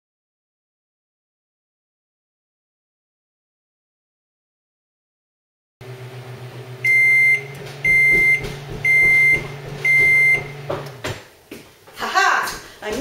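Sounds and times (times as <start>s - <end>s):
microwave beeping: 5.8s - 11.0s
microwave oven humming: 5.8s - 11.1s.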